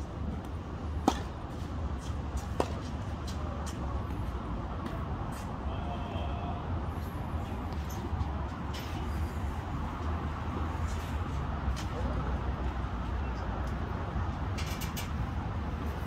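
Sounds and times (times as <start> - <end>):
tennis balls hit with racquets: 0.4 - 3.8.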